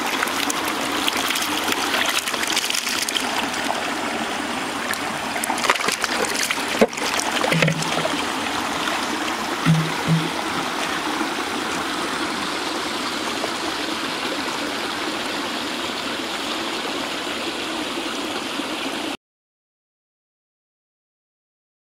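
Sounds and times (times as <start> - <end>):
water pouring from pipes: 0.0 - 15.0.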